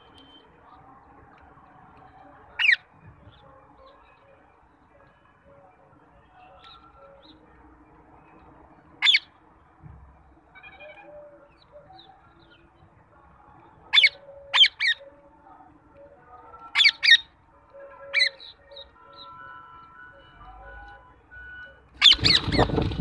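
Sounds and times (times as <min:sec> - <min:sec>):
parakeets screeching: 0:02.6 - 0:02.8, 0:09.0 - 0:09.3, 0:16.7 - 0:17.3, 0:18.1 - 0:18.6, 0:22.0 - 0:23.0.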